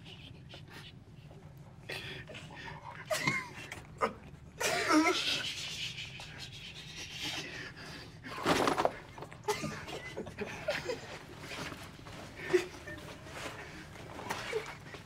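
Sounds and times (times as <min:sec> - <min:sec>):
backpacks rustling: 0:11.0 - 0:15.0.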